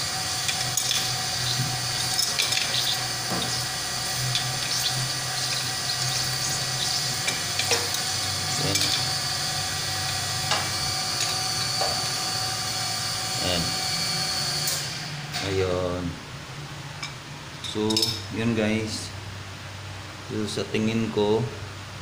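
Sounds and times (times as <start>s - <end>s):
water hissing in pipes: 0.0s - 14.0s.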